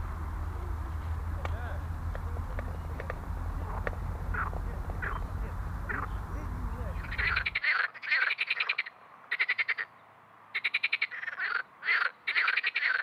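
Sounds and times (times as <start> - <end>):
frog croaking: 2.1 - 9.9, 10.5 - 13.0.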